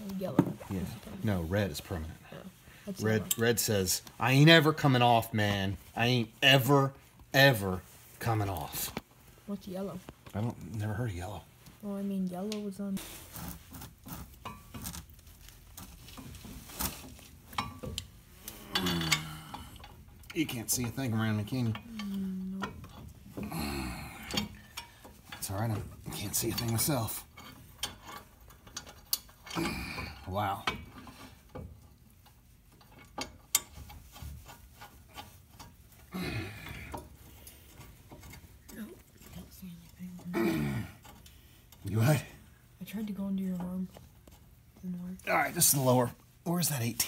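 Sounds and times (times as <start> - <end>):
metal tools clicking and tapping: 17.2 - 23.5, 24.2 - 29.6, 30.5 - 36.0.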